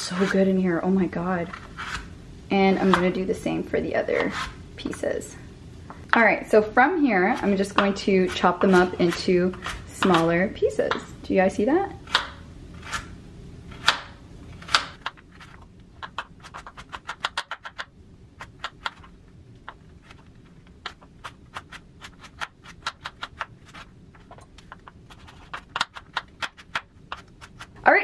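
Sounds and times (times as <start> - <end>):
knife chopping on wooden board: 13.8 - 15.1.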